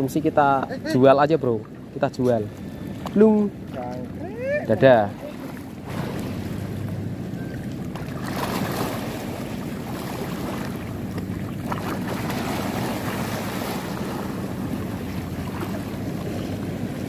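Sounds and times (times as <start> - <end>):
sea water lapping: 0.0 - 17.0.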